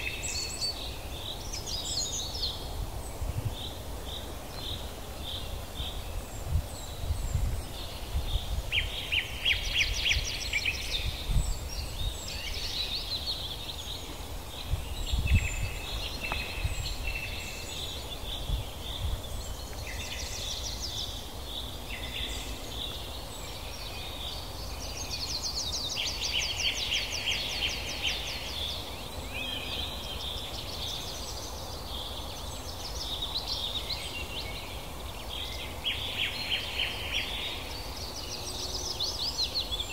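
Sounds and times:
outdoor background: 0.0s - 39.9s
songbirds trilling and chirping: 0.0s - 39.9s.

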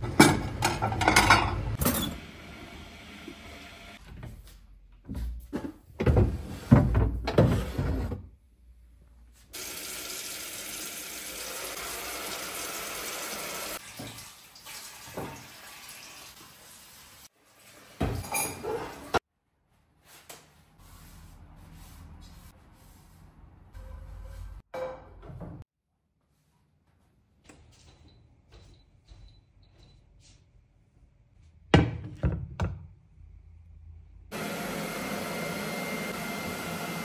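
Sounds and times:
metal pots and pans clattering: 0.0s - 2.1s, 18.0s - 19.2s
kitchen tap running into sink: 9.6s - 18.3s.

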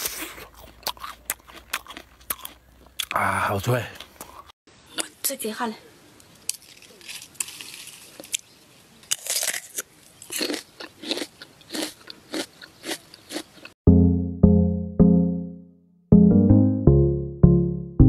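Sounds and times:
person chewing crisp fruit: 0.0s - 3.3s, 4.0s - 5.1s, 9.1s - 13.8s
music: 13.8s - 18.0s.

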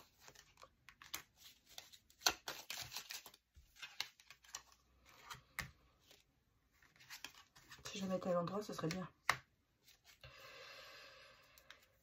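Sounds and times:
cards being shuffled: 0.0s - 10.2s.

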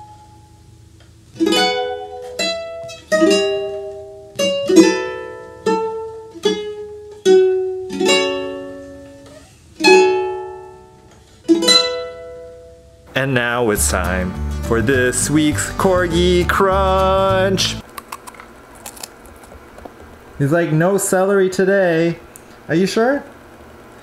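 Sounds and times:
ukulele strummed chords: 1.3s - 17.9s.

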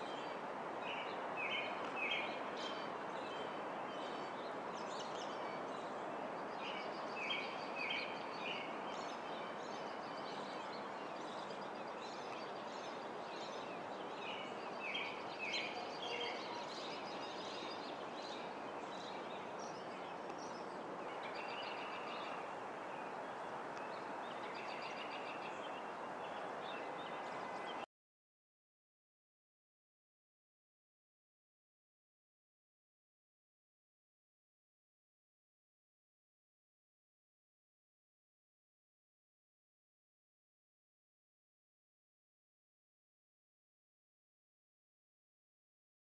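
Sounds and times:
small birds chirping: 0.9s - 27.8s.

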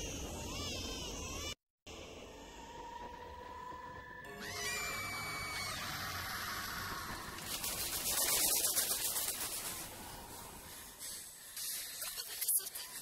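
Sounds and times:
shrill rising cry: 4.2s - 7.3s
rapidly fluttering hiss: 6.9s - 12.7s.

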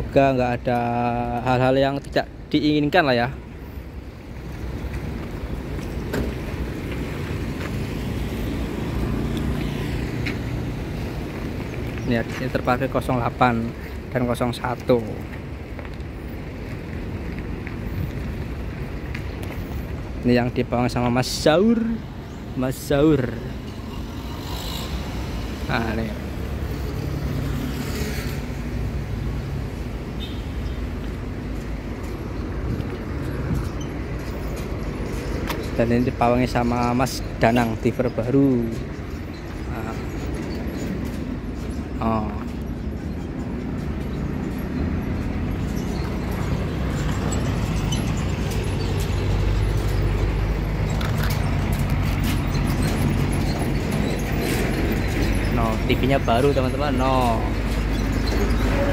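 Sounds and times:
bus diesel engine running: 38.3s - 58.9s.

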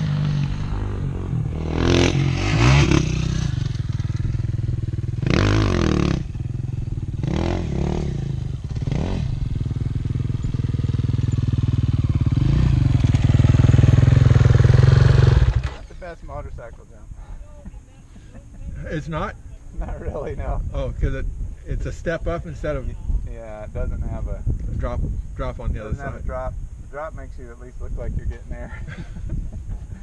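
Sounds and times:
buggy engine revving: 0.0s - 16.0s.

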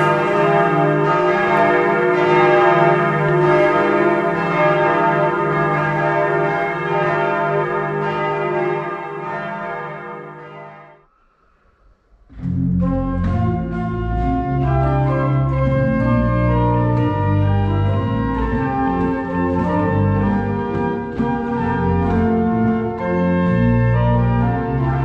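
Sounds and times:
church bells ringing: 0.0s - 11.1s, 12.8s - 25.0s.

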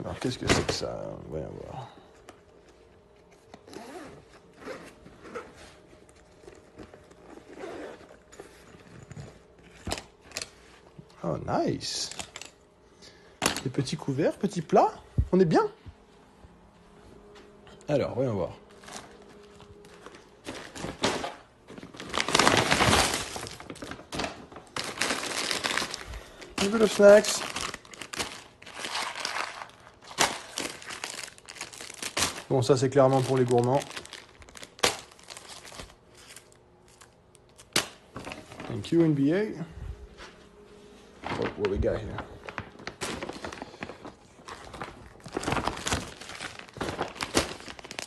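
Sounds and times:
pouch handling: 3.0s - 11.0s, 41.2s - 48.0s
zipper pulled open: 3.6s - 5.6s, 7.2s - 9.3s
plastic and paper bags crinkling: 18.0s - 39.4s, 41.1s - 48.0s.

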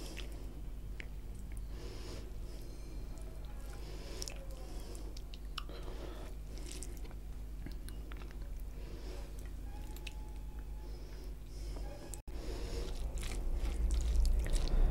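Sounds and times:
person chewing and mouth smacks: 0.0s - 1.7s, 3.2s - 10.7s, 12.8s - 14.9s
steady low hum: 0.0s - 14.9s.

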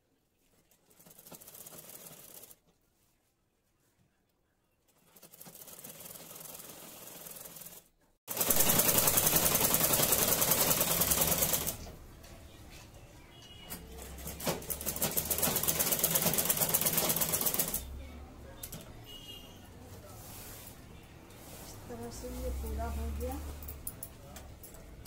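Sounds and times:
sewing machine stitching: 0.8s - 2.6s, 4.9s - 11.9s, 13.9s - 17.9s.

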